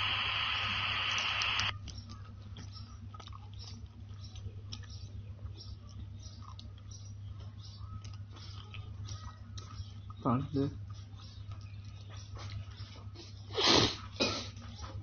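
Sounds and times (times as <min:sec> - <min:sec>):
recording hiss: 0:00.0 - 0:01.7
low electrical hum: 0:00.0 - 0:15.0
faint small clicks: 0:00.8 - 0:02.0.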